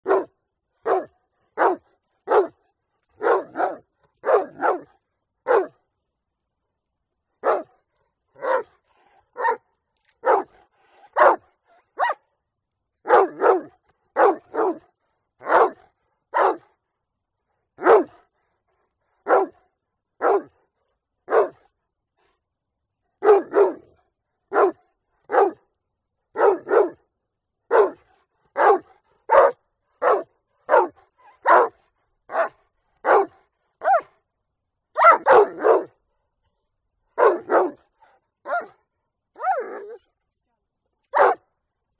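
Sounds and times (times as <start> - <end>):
dog barking: 0.0 - 2.6, 3.2 - 5.8, 7.4 - 7.8, 8.4 - 9.6, 10.2 - 12.2, 13.0 - 16.7, 17.8 - 18.2, 19.2 - 20.6, 21.3 - 21.6, 23.2 - 23.9, 24.5 - 25.6, 26.4 - 27.0, 27.7 - 34.2, 35.0 - 36.0, 37.2 - 38.8, 39.4 - 40.1, 41.1 - 41.5.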